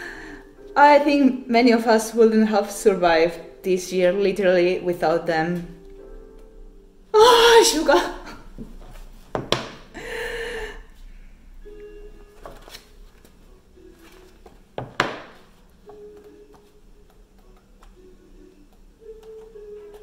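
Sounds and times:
quiet music: 0.0s - 20.0s
handling knocks: 8.6s - 9.9s.

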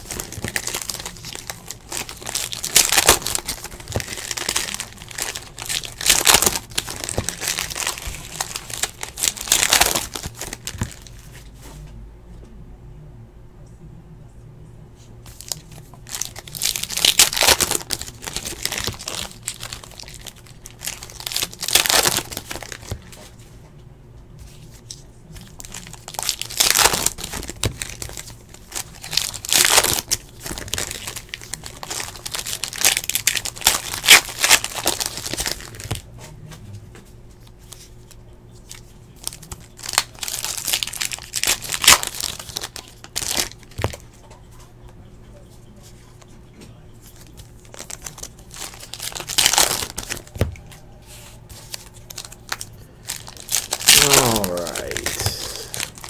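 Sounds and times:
foil wrappers torn and crinkled: 0.0s - 11.3s, 15.3s - 23.2s, 24.8s - 36.0s, 38.7s - 44.0s, 47.1s - 50.8s, 51.5s - 56.0s.

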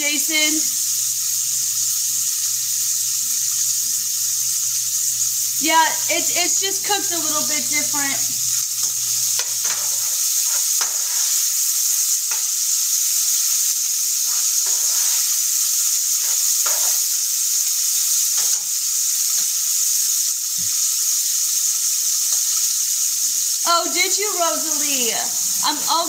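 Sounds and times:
bacon sizzling in a skillet: 0.0s - 26.0s
spatula scraping: 8.8s - 12.5s, 14.2s - 15.6s, 16.2s - 17.0s.

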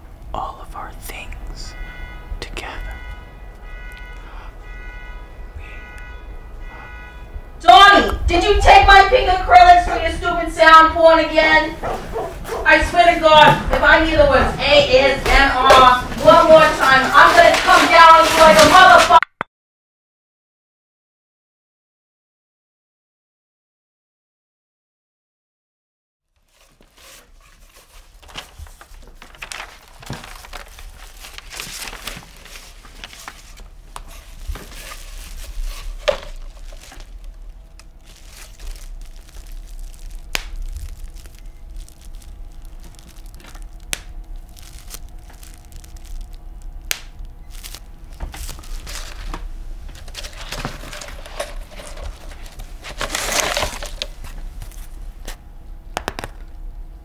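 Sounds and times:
faint steady hum: 0.0s - 18.2s, 26.6s - 57.0s
crackling and crunching: 11.8s - 19.2s, 26.3s - 56.8s.

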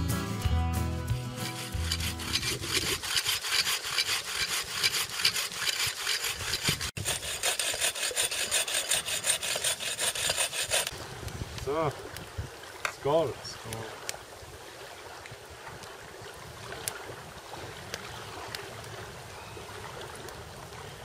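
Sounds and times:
saw rasping through branches: 1.1s - 10.9s.

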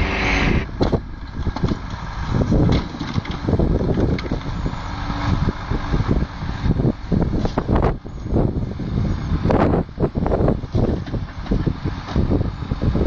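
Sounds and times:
diesel engine under load: 0.0s - 13.0s
logs knocking and clunking: 0.8s - 4.5s, 10.7s - 12.3s.

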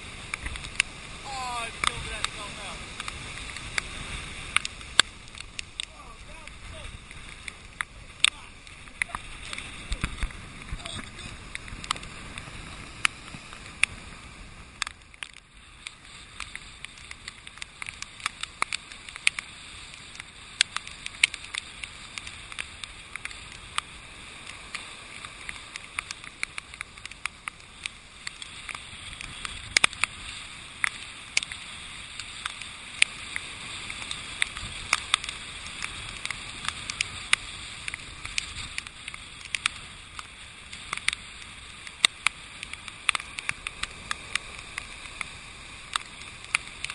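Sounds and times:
storm surf: 0.0s - 15.4s
rain and spray striking camera: 0.0s - 46.9s
wind hissing: 0.0s - 46.9s.

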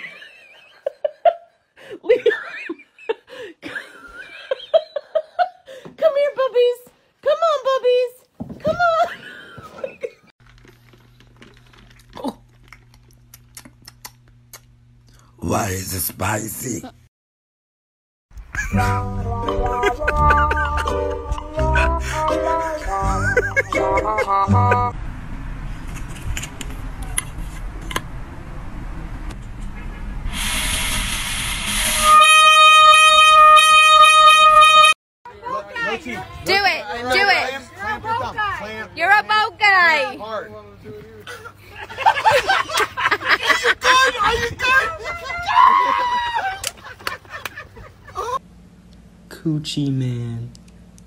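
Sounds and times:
toy horn honking: 31.6s - 35.0s
steady low hum: 46.8s - 51.0s.

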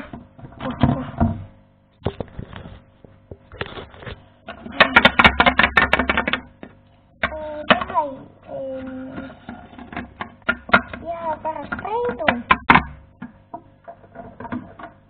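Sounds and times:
plastic figurines knocking on wood: 4.5s - 8.1s, 9.2s - 15.0s
fast run of taps: 4.7s - 8.0s, 9.5s - 14.9s.

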